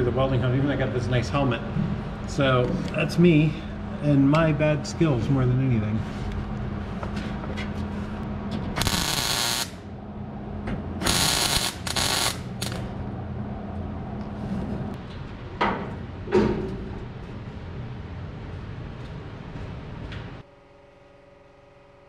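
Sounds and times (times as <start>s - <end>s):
steady low hum: 0.0s - 22.0s
welding arc bursts: 8.8s - 9.8s, 11.0s - 12.8s.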